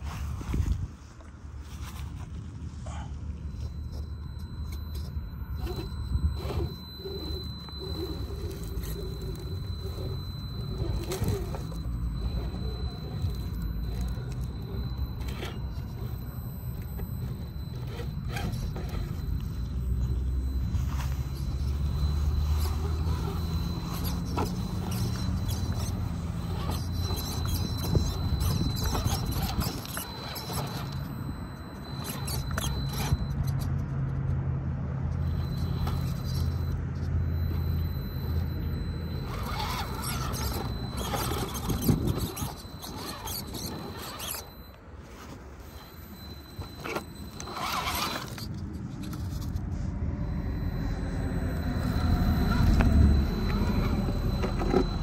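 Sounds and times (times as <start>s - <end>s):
tires scraping rock: 0.0s - 34.2s, 35.2s - 55.0s
rc car drivetrain rumble: 1.7s - 34.2s, 35.1s - 55.0s
clicks: 35.1s - 55.0s.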